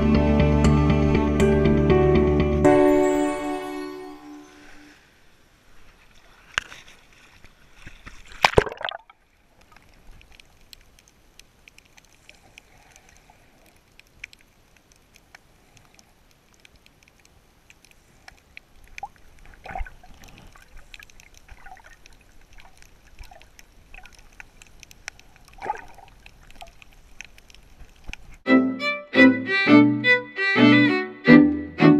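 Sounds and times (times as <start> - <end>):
faint crackles: 4.5 - 28.5
water splashing: 5.7 - 28.5.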